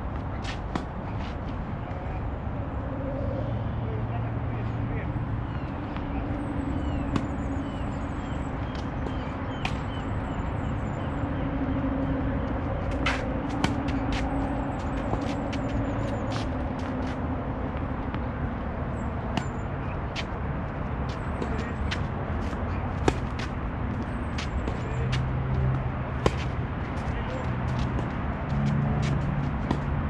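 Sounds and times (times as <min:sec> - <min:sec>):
steady low rumble: 0:00.0 - 0:30.0
tennis balls struck by rackets: 0:00.1 - 0:01.0, 0:06.0 - 0:07.5, 0:08.6 - 0:10.2, 0:12.8 - 0:18.3, 0:19.2 - 0:20.4, 0:21.0 - 0:30.0.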